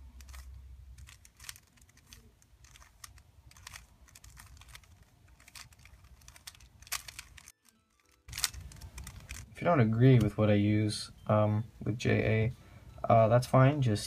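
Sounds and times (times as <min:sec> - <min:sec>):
puzzle cube clicking: 0:00.0 - 0:10.4.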